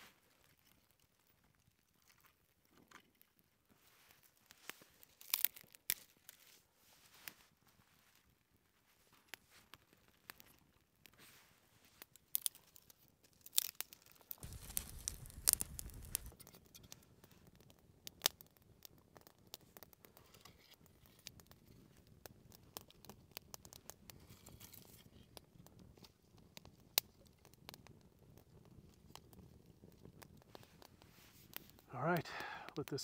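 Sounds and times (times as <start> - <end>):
fire crackling and popping: 0.2 - 6.6, 7.2 - 33.0
sticks laid on fire: 13.5 - 17.0, 30.5 - 33.0.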